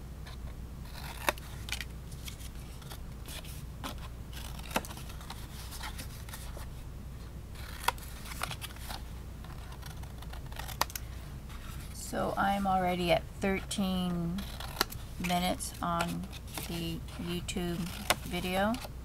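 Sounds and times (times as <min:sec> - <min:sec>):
low steady hum: 0:00.0 - 0:19.0
scissors snipping paper: 0:07.6 - 0:11.0, 0:14.4 - 0:18.9.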